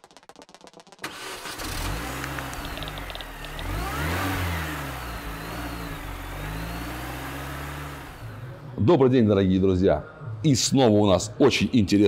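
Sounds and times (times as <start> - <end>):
car engine revving: 1.1 - 8.8.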